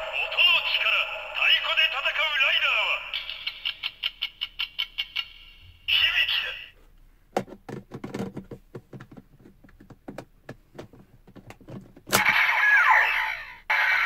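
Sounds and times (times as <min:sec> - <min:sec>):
electronic toy sound effect: 0:12.2 - 0:14.0.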